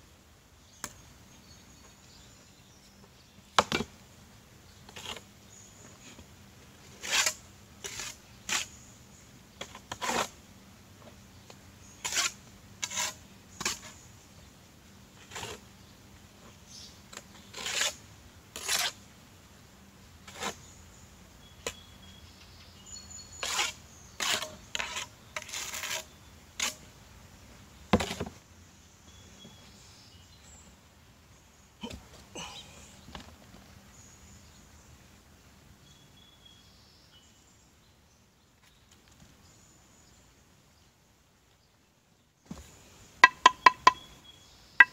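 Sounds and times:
trowel scraping mortar: 6.9s - 8.8s, 9.6s - 10.3s, 12.0s - 14.0s, 15.2s - 15.6s, 17.5s - 18.0s, 18.6s - 19.0s, 23.4s - 26.8s
sharp knock: 43.2s - 44.0s.

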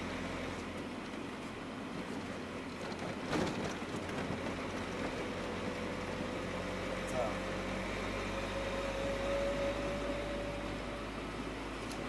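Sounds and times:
van engine and tyre drone: 0.0s - 12.0s.

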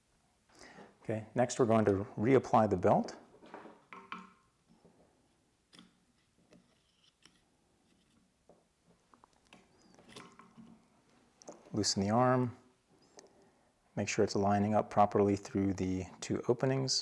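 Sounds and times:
faint clicks and taps: 5.7s - 11.7s.

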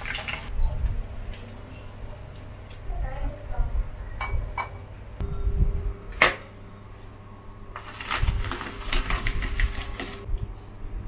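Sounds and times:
faint steady hum: 0.5s - 8.7s.

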